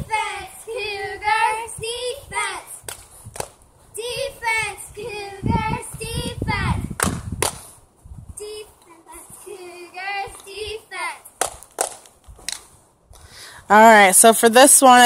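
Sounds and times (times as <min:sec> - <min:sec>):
girls chanting a cheer: 0:00.0 - 0:02.8, 0:03.9 - 0:06.9, 0:08.4 - 0:11.3
sharp hand claps: 0:07.0 - 0:07.7, 0:11.4 - 0:12.6.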